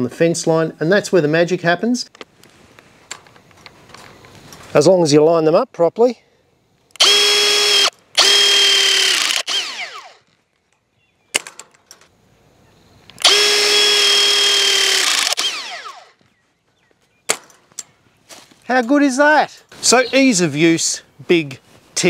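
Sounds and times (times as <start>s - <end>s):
sharp clicks: 6.8s - 12.1s, 13.0s - 16.3s
press tool motor whining: 7.0s - 10.2s, 13.2s - 16.2s.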